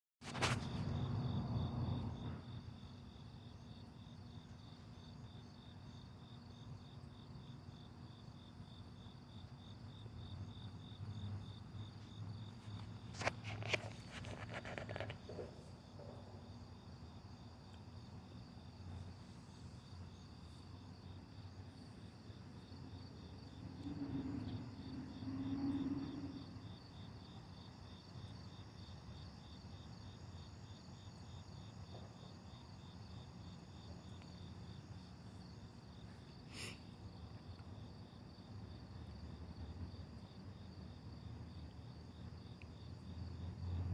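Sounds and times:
crickets chirping: 0.2 - 43.9
distant traffic rumble: 10.1 - 17.2.

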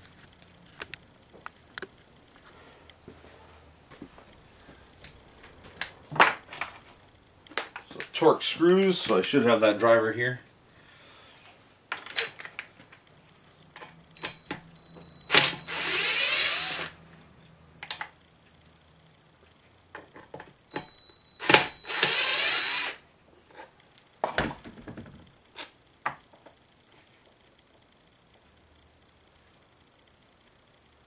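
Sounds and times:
cordless drill running: 14.2 - 17.0, 20.7 - 23.0
drill trigger click: 14.2 - 17.0, 20.7 - 23.0.

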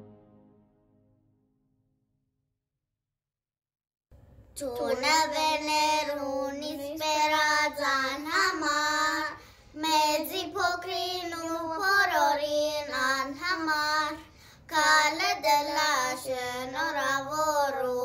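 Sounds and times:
girls singing together: 4.6 - 18.0.

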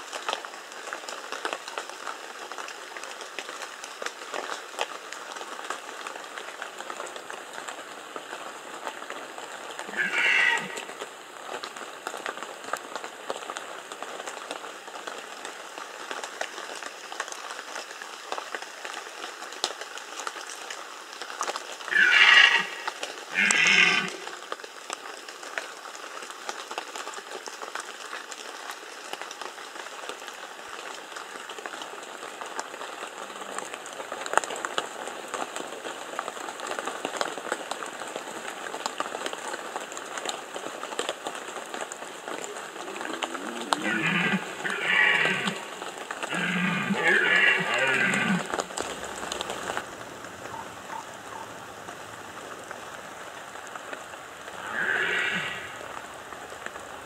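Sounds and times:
background hiss: 0.0 - 18.3, 21.4 - 25.4, 41.8 - 57.0
deer stag rutting calls: 9.9 - 11.0, 21.9 - 24.4, 42.6 - 48.7, 54.6 - 55.9.

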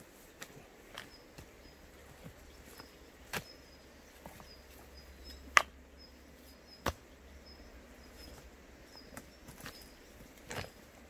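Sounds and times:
stones knocking together: 10.4 - 10.8.

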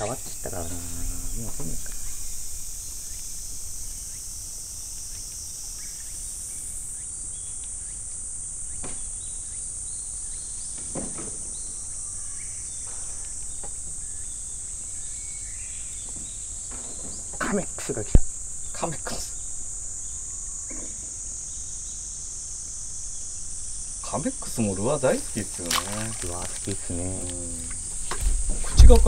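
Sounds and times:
bird chirps: 0.0 - 4.4
insects chorus: 0.0 - 29.0.

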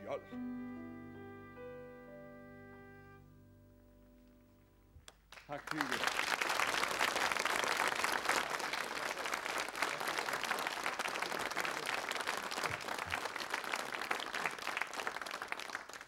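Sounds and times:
audience applauding: 5.1 - 16.0.

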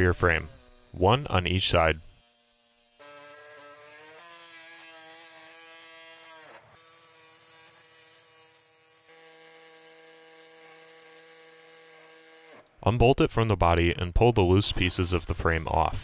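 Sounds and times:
power tool motor whine: 0.0 - 1.0, 2.0 - 12.7.

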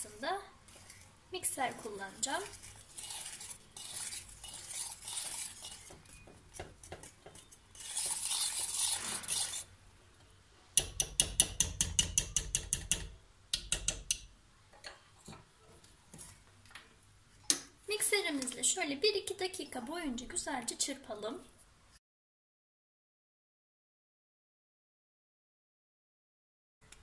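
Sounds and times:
whisk scraping in a metal pot: 0.1 - 9.7
whisk clicking against pot: 1.8 - 9.6, 10.8 - 14.3.

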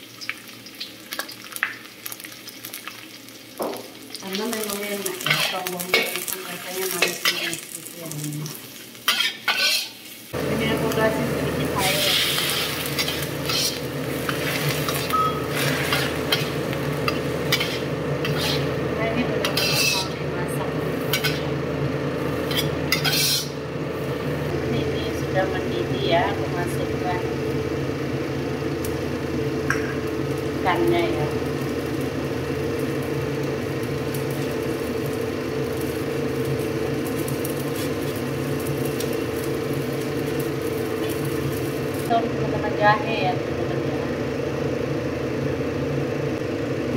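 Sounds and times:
water boiling in pot: 0.0 - 9.6, 10.3 - 46.9
onions sizzling in a wok: 0.0 - 46.9
spatula scraping a wok: 5.2 - 6.2, 6.9 - 7.8, 9.0 - 10.1, 11.8 - 18.8, 19.4 - 20.2, 21.0 - 21.5, 22.4 - 23.6, 37.1 - 38.2
whirring motor hum: 10.3 - 46.9.

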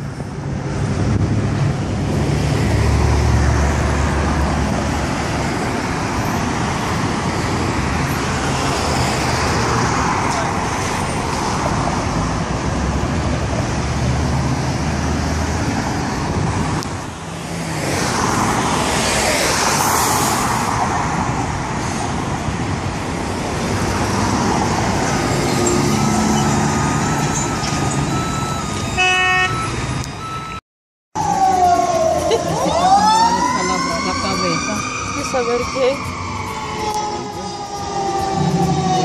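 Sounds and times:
traffic driving past: 0.1 - 30.6, 31.2 - 39.0
car horn toot: 29.0 - 29.6.

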